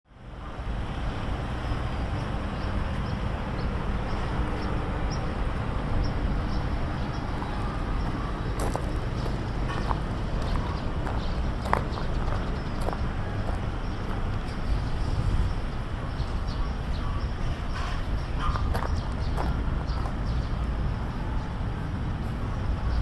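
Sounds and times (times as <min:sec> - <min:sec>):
low outdoor rumble: 0:00.1 - 0:23.0
footsteps: 0:08.0 - 0:14.2.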